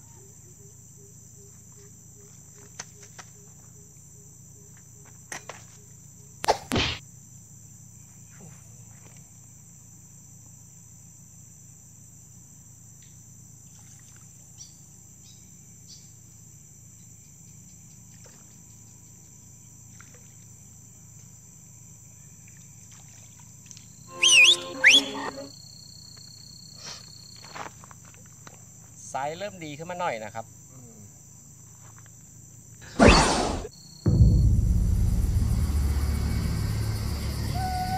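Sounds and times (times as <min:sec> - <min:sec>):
insects chirping: 0:00.0 - 0:37.9
sharp knocks: 0:34.1 - 0:37.5.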